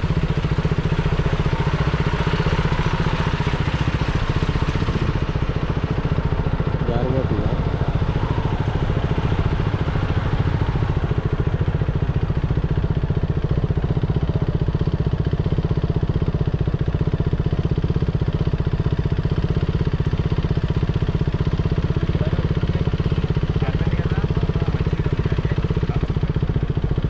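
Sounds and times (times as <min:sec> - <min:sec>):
small engine running: 0:00.0 - 0:27.0.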